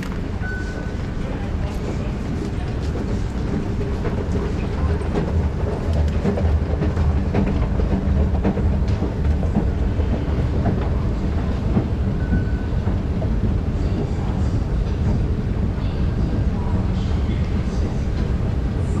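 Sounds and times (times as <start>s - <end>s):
escalator steps clacking: 0.0s - 14.1s
escalator low rumble: 0.0s - 19.0s.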